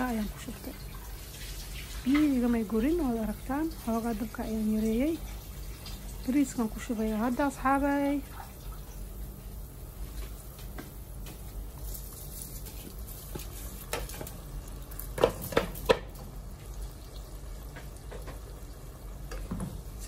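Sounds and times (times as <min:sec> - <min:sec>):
wooden spoon scraping rice: 0:11.7 - 0:14.4.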